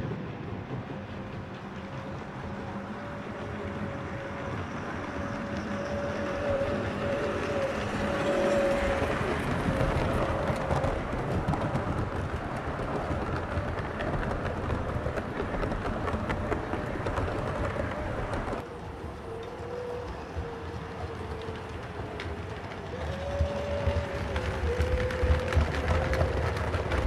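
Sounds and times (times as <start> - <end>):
coach wheels clicking: 0.0 - 27.0
wheel rumble: 0.0 - 27.0
model train motor hum: 2.8 - 11.1.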